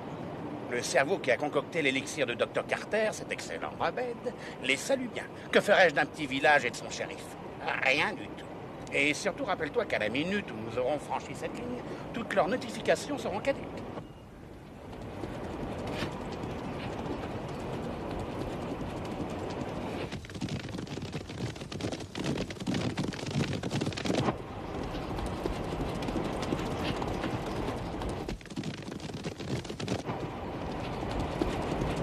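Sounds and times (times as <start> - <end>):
horses galloping: 14.4 - 32.0.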